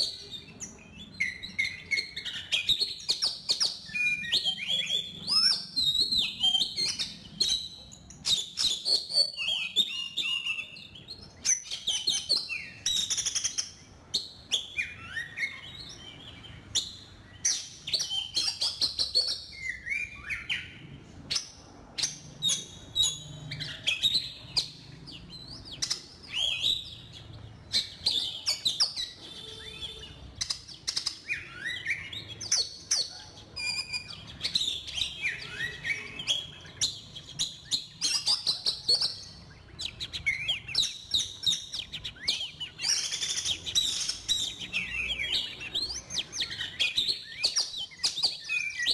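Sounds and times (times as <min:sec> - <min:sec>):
bird whistling and chirping: 0:00.0 - 0:48.9
sharp bird clicks: 0:30.4 - 0:35.0.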